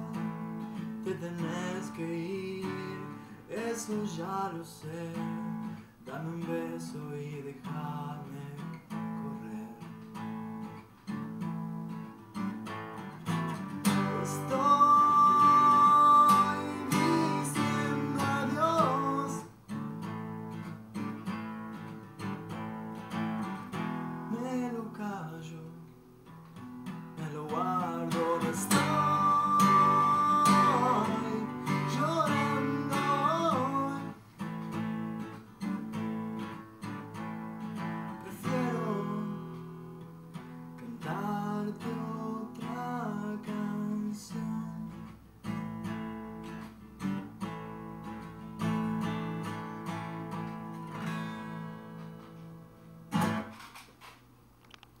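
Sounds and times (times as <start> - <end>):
man singing wordless melody: 0.0 - 10.2, 13.8 - 19.6, 24.2 - 25.9, 27.2 - 34.2, 38.1 - 39.8, 40.8 - 45.1
acoustic guitar strummed and picked: 0.0 - 55.0.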